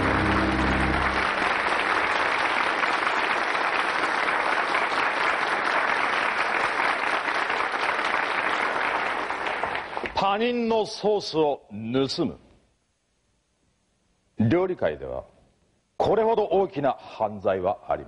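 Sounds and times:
musical sting: 0.0s - 1.7s
studio audience applauding: 0.0s - 10.2s.

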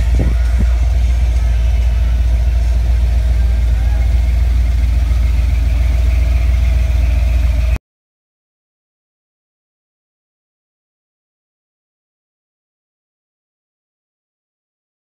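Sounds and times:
v-eight engine idling: 0.0s - 7.8s.

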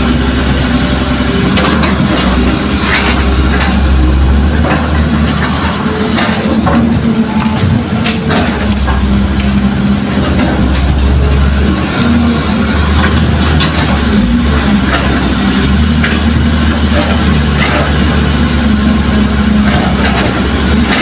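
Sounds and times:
dump truck engine running: 0.0s - 21.0s
excavator diesel engine: 0.0s - 21.0s
metal and earth knocks: 1.5s - 11.2s, 12.8s - 18.2s, 19.5s - 21.0s.

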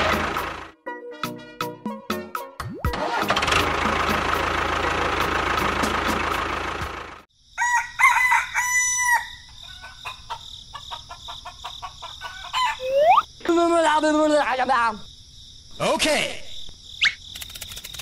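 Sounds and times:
tractor engine running: 0.0s - 0.7s, 2.9s - 7.3s
rooster crowing: 7.5s - 12.9s.

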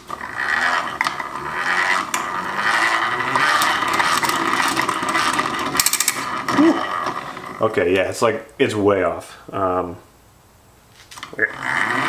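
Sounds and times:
chisel scraping on grinding wheel: 0.0s - 7.7s, 11.2s - 12.0s.

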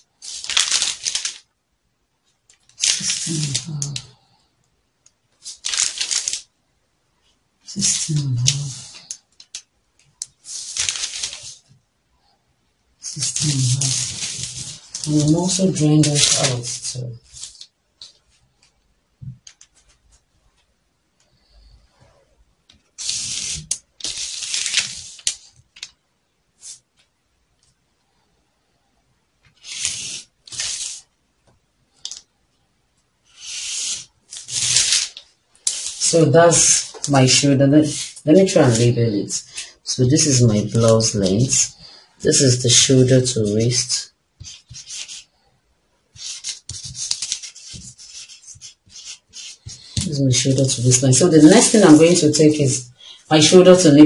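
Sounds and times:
paper rustling and scratching: 0.1s - 1.5s, 2.5s - 4.2s, 5.4s - 6.5s, 7.7s - 11.8s, 13.0s - 18.7s, 22.7s - 26.0s, 29.4s - 31.1s, 33.2s - 45.4s, 46.1s - 54.0s
marker scratching on paper: 23.0s - 25.2s, 29.6s - 31.1s, 33.3s - 35.1s, 35.7s - 38.9s, 44.4s - 45.3s, 46.1s - 52.4s.

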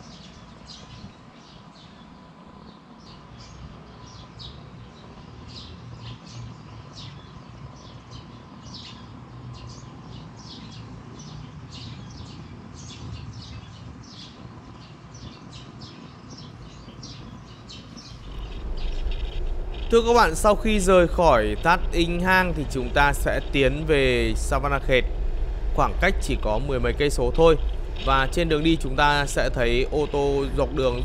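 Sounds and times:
small birds chirping: 0.0s - 31.0s
low background rumble: 16.5s - 31.0s.

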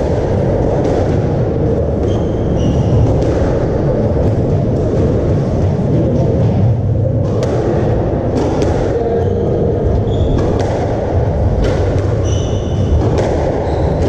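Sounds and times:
shoes squeaking on wooden floor: 9.2s - 10.5s
squash ball cracking off rackets: 10.3s - 14.0s.

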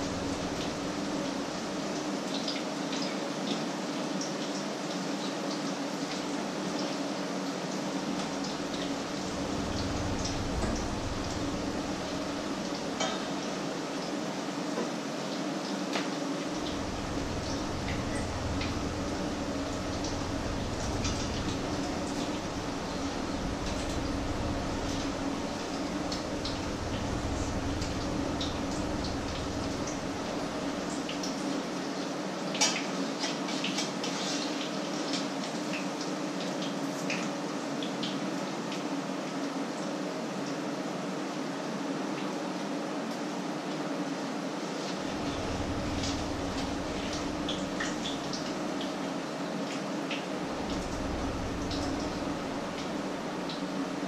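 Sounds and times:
low steady hum: 0.0s - 2.0s, 8.2s - 13.6s, 16.4s - 32.0s, 45.0s - 49.3s, 50.3s - 54.0s
low rumble: 8.6s - 12.8s, 16.5s - 31.1s, 45.1s - 48.6s, 50.5s - 53.3s.

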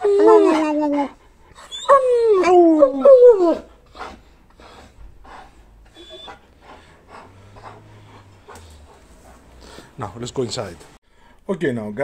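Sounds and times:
dog whining: 0.0s - 9.6s
dog panting: 3.6s - 11.0s.

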